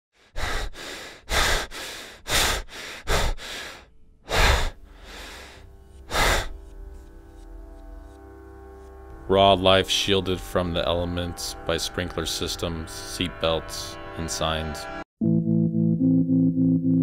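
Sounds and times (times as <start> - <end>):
heavy gasping breaths: 0.2 - 6.8
low drone of held tones: 4.8 - 15.0.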